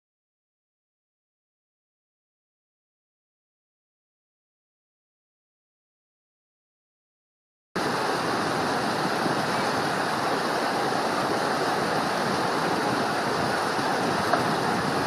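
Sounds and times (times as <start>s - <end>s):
stream rushing over rocks: 7.8s - 15.0s.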